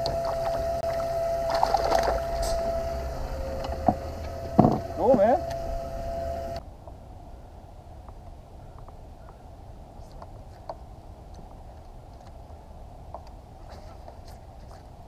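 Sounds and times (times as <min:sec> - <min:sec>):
low rumble on a boat: 0:00.0 - 0:09.4.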